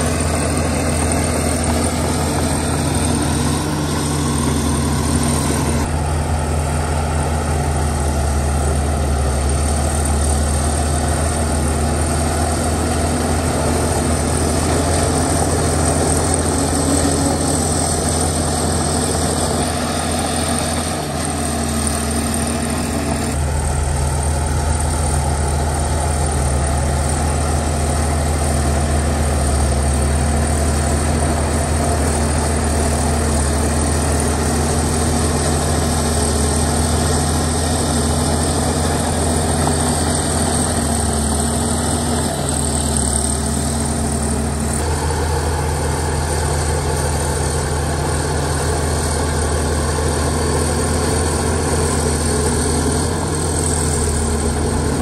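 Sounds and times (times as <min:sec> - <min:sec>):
bulldozer diesel engine running: 0:00.0 - 0:55.0.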